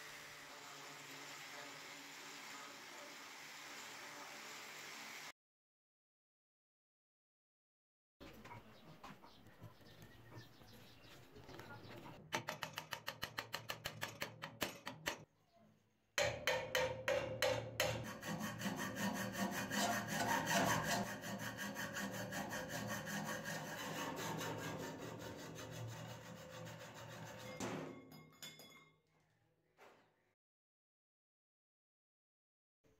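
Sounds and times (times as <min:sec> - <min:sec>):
hacksaw cutting steel rod: 0:16.2 - 0:27.6.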